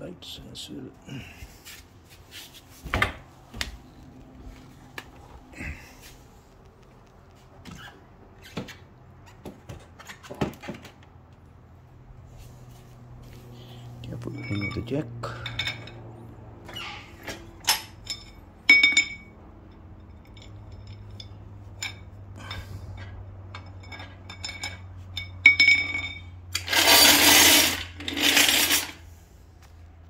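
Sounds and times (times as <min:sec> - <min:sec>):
metallic clinks of trolley jack: 0:20.2 - 0:29.0.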